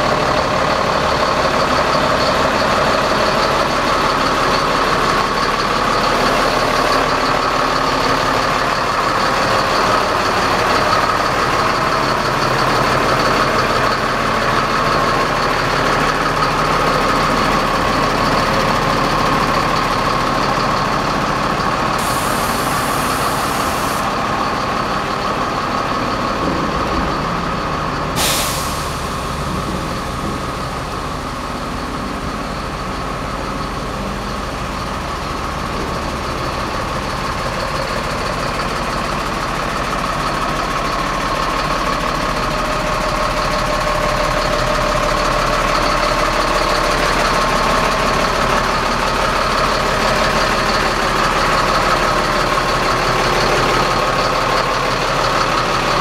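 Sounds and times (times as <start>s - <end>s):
truck diesel engine idling: 0.0s - 56.0s
air release hiss: 22.0s - 24.0s, 28.2s - 29.1s.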